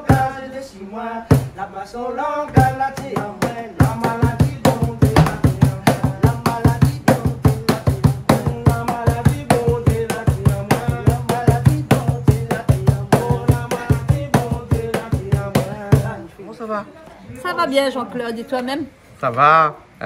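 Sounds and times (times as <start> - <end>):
box drum beat: 0.0 - 0.4, 1.2 - 1.6, 2.5 - 16.2
man singing into a microphone: 0.0 - 16.3.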